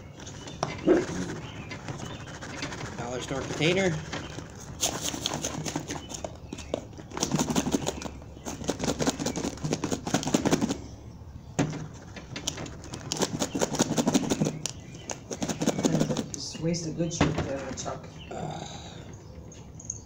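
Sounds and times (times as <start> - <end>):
plastic container rattling when shaken: 0.4 - 6.3, 7.1 - 10.8, 12.8 - 16.4.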